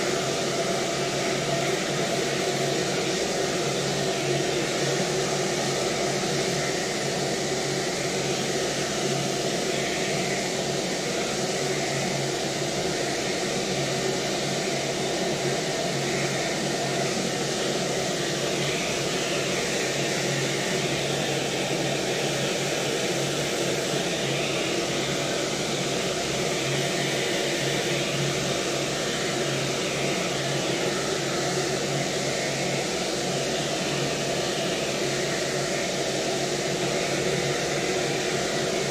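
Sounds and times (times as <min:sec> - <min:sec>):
hair dryer blowing: 0:00.0 - 0:38.9.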